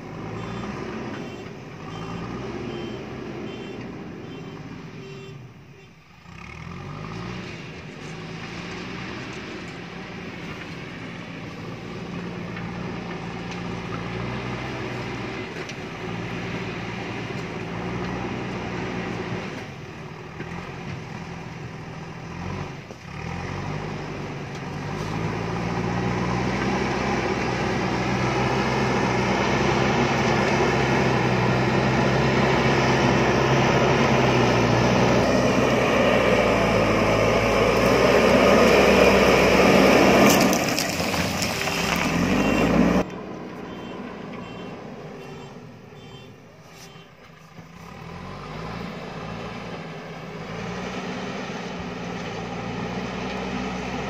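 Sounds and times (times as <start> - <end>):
diesel engine working under load: 0.0 - 54.0
bucket pushing rock and soil: 37.6 - 43.0.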